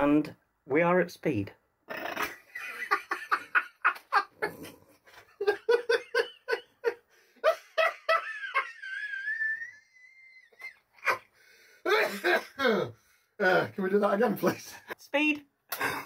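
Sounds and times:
man laughing: 0:02.2 - 0:11.3.

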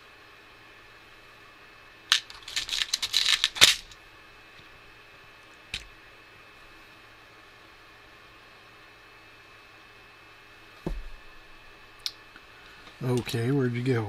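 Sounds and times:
plastic and metal parts clicking: 0:02.1 - 0:04.0.

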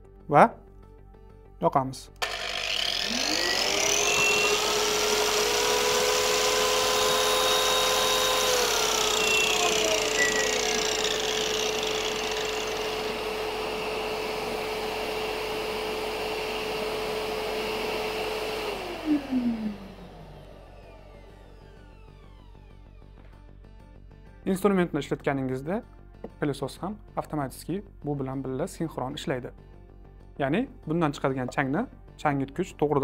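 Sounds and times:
power tool motor whine: 0:02.2 - 0:23.0
vacuum suction air rushing: 0:03.2 - 0:20.4.

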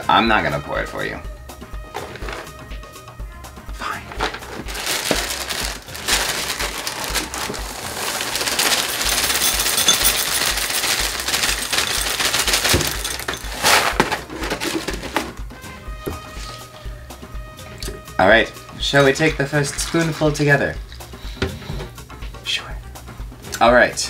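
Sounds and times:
cereal rattling into a bowl: 0:02.0 - 0:02.6, 0:04.1 - 0:15.3.

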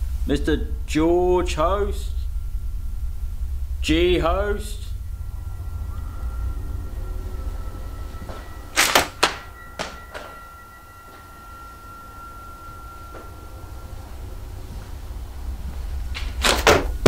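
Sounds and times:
faint steady high tone: 0:00.0 - 0:16.4
low rumble: 0:00.0 - 0:17.0
sharp knocks: 0:08.3 - 0:10.4.

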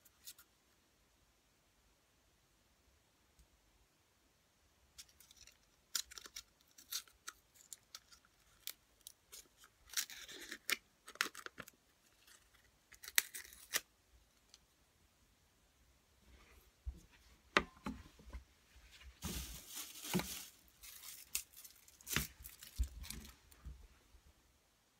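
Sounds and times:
thin plastic clicks and crinkles: 0:05.0 - 0:14.6
plastic tearing rustle: 0:19.2 - 0:23.6.

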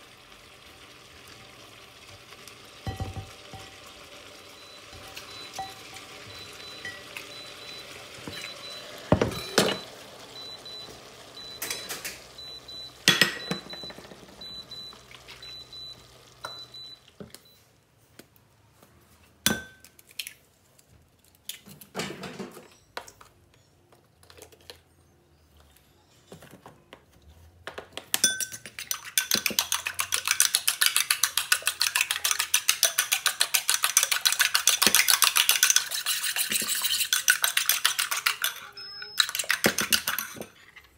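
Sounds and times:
faint pan sizzle: 0:00.0 - 0:17.2
utensil beating eggs in bowl: 0:04.6 - 0:09.5, 0:28.4 - 0:40.6.

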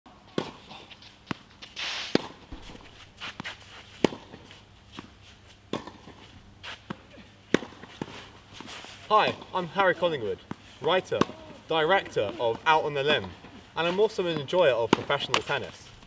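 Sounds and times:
shoes scuffing on clay: 0:00.8 - 0:07.0
racket striking tennis ball: 0:02.1 - 0:05.1, 0:05.7 - 0:06.2, 0:06.8 - 0:08.1, 0:10.5 - 0:12.6, 0:14.9 - 0:15.5
tennis ball bouncing: 0:02.1 - 0:05.1, 0:05.7 - 0:06.2, 0:06.9 - 0:08.1, 0:10.4 - 0:13.4, 0:14.3 - 0:15.5.

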